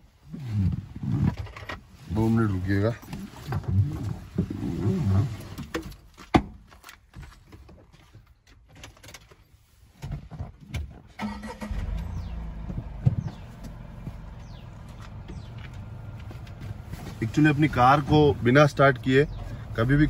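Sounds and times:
car engine starting and idling: 0:11.2 - 0:20.0.

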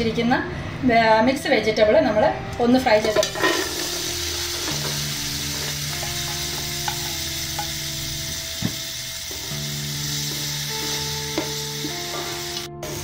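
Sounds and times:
soft background music: 0:00.0 - 0:13.0
vegetables sizzling in a pot: 0:02.8 - 0:13.0.

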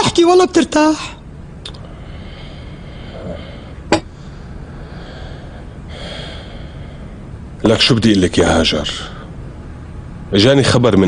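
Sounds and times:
room noise: 0:00.0 - 0:11.0
soft breathing: 0:01.8 - 0:07.4.

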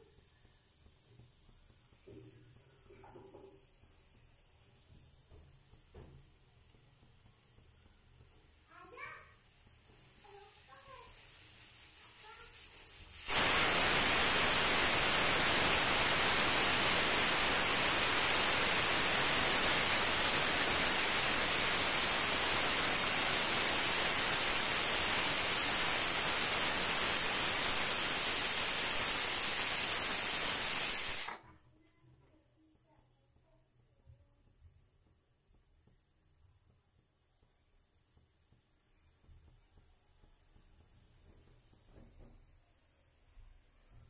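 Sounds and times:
pressure cooker whistling: 0:00.0 - 0:31.6
faint hiss of steam: 0:00.0 - 0:33.8, 0:34.4 - 0:44.0.

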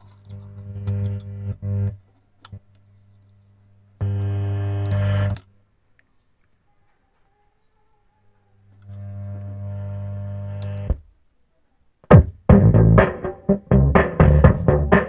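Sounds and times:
loud low speaker buzz: 0:00.4 - 0:02.0, 0:04.0 - 0:05.4, 0:08.9 - 0:11.0, 0:12.1 - 0:15.0
crackling clicks: 0:10.5 - 0:10.9.

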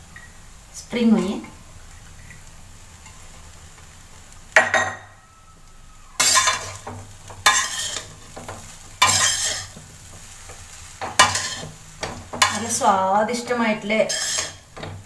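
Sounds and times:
metal spatula scraping wok: 0:06.2 - 0:14.9.

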